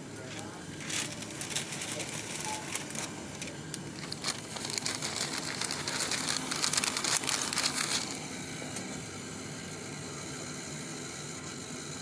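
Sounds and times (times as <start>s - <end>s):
coffee machine humming: 0.0s - 12.0s
paper crinkling and rustling: 0.2s - 8.8s.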